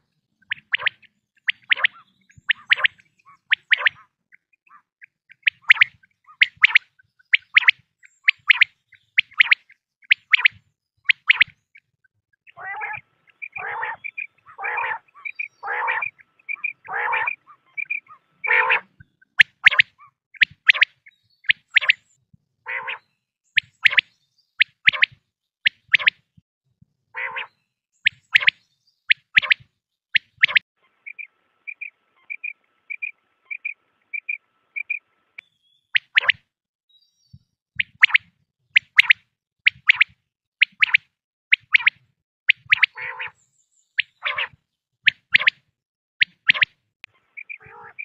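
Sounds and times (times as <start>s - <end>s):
quail calling: 0.5s - 11.6s, 12.5s - 22.0s, 22.7s - 26.2s, 27.2s - 29.6s, 30.2s - 35.0s, 41.6s - 43.4s, 44.0s - 45.6s, 46.2s - 48.0s.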